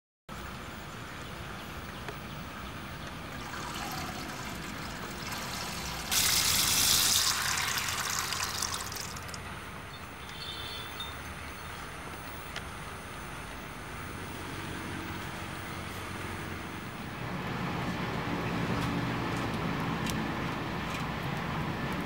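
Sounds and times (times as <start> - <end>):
loud hiss: 3.6 - 9.4.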